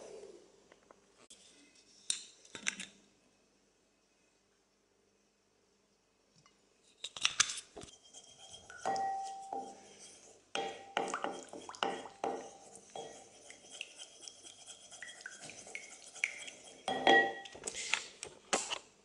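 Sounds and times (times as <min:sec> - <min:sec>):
spoon scraping ceramic bowl: 0:07.8 - 0:17.5.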